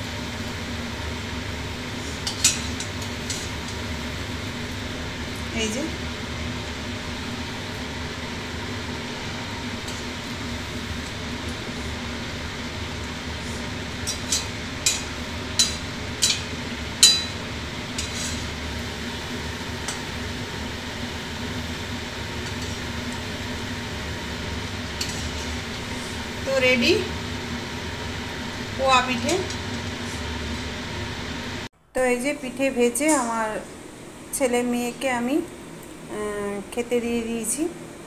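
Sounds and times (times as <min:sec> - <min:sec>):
oil sizzling in a wok: 0:00.0 - 0:31.7
spatula clinking against wok: 0:14.1 - 0:17.4.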